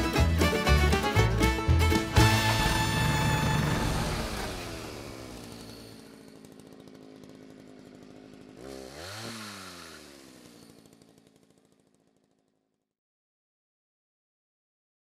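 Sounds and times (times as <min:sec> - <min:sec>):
small engine revving: 0:02.0 - 0:12.5.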